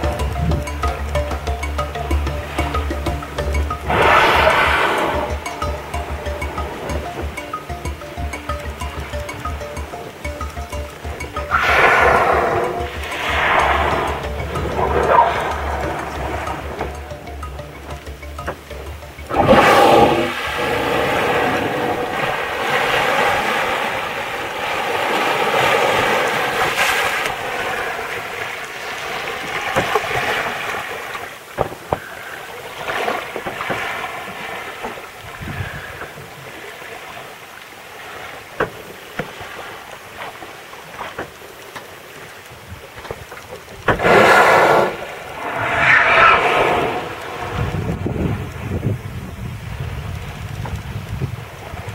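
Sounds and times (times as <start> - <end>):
water rushing and lapping: 0.0 - 51.9
whale blowing: 3.8 - 6.6, 11.4 - 16.9, 19.3 - 28.0, 43.9 - 48.6.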